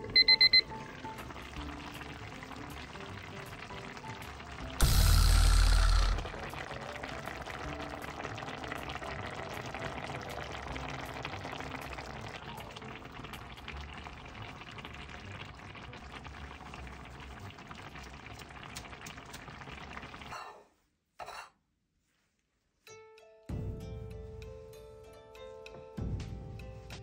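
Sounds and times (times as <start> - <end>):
soup bubbling in a pot: 0.4 - 20.4.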